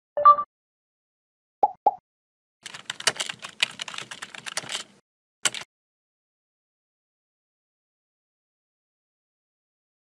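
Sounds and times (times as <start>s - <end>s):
keyboard typing: 2.6s - 5.7s.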